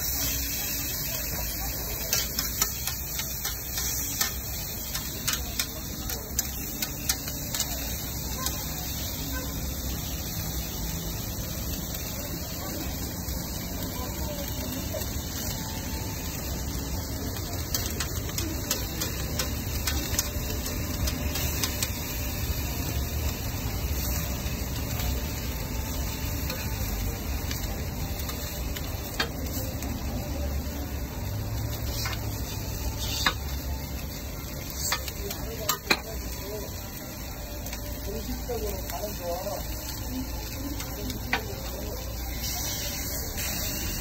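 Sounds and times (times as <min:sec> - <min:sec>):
food sizzling on griddle: 0:00.0 - 0:44.0
metal spatula scraping griddle: 0:31.8 - 0:33.5.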